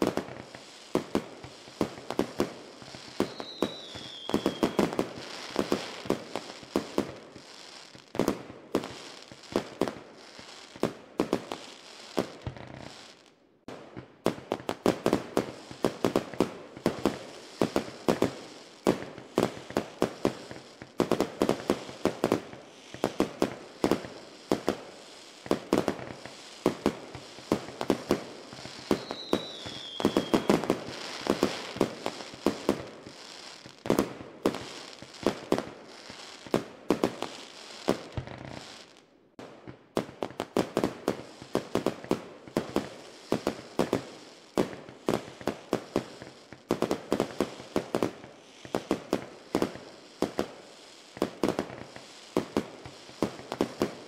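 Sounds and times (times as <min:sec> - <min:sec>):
falling firework whistle: 0:00.0 - 0:08.0, 0:25.4 - 0:36.5
fireworks popping and crackling: 0:00.0 - 0:54.0.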